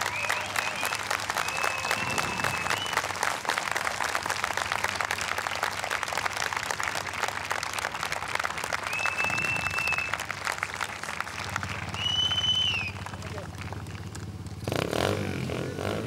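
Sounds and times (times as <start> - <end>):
high whistle: 0.0 - 3.1, 8.8 - 10.2, 11.9 - 13.0
audience clapping: 0.0 - 14.8
small engine idling: 3.8 - 16.0.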